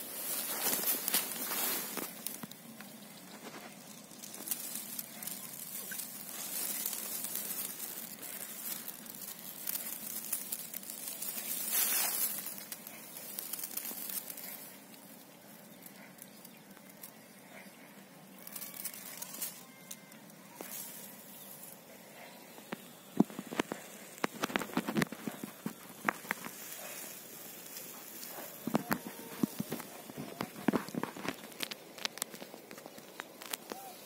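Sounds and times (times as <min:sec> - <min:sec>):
dry wheat stalks rustling: 0:00.0 - 0:34.0.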